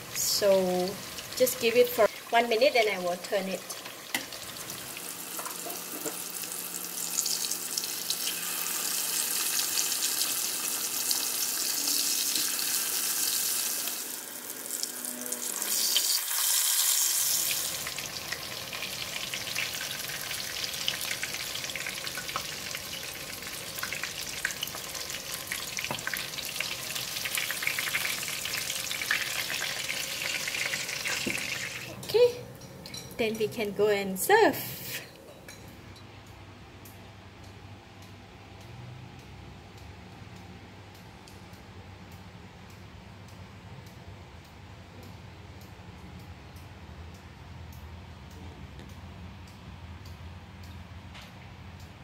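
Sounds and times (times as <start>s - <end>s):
fish sizzling in hot oil: 0.0s - 2.7s, 3.6s - 31.9s.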